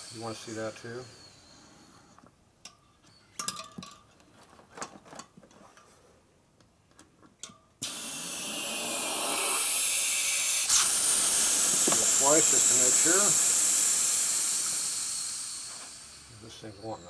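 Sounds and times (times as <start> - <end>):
compressed air hissing: 0.0 - 2.1, 7.8 - 17.0.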